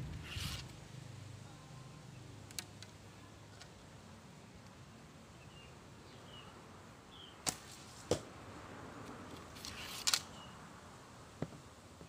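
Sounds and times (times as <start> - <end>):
arrow striking target: 7.4 - 8.3.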